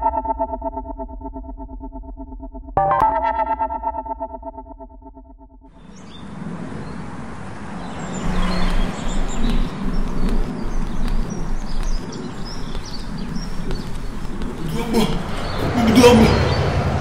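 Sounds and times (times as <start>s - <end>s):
small birds chirping: 5.8s - 16.8s
low traffic rumble: 5.8s - 17.0s.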